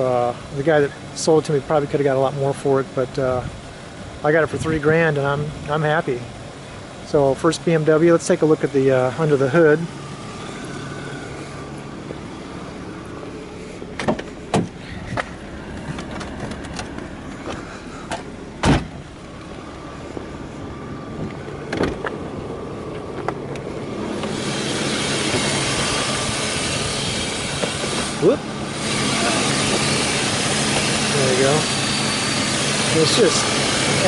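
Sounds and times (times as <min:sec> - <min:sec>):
car hood clicks and knocks: 0:14.0 - 0:17.1, 0:18.1 - 0:19.0, 0:21.7 - 0:22.2.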